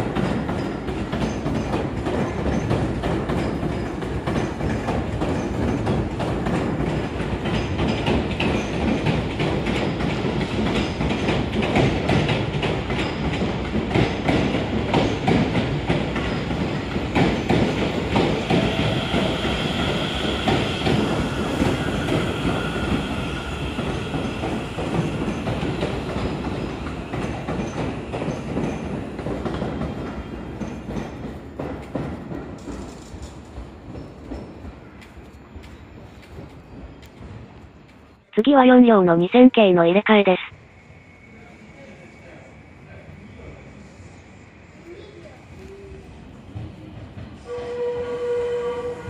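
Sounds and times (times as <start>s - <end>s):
train wheels clacking over rails: 0.0s - 38.1s.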